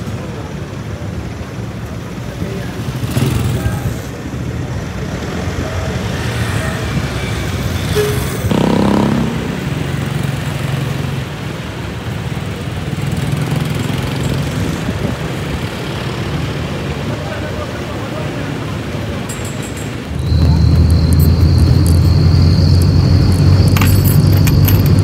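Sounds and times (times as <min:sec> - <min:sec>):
vehicle engines running: 0:00.0 - 0:25.0
horn-like engine sound: 0:06.7 - 0:09.6.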